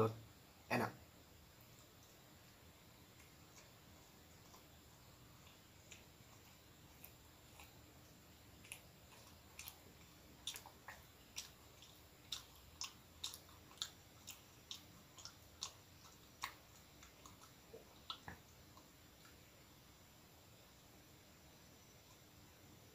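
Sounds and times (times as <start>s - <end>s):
chewing bread with mouth smacks: 1.6s - 19.4s.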